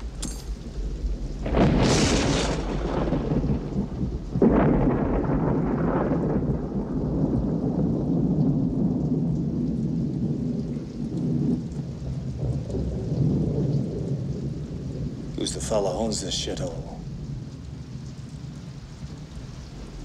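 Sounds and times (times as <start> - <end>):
heavy rain: 0.0 - 20.0
low rumble of thunder: 0.0 - 20.0.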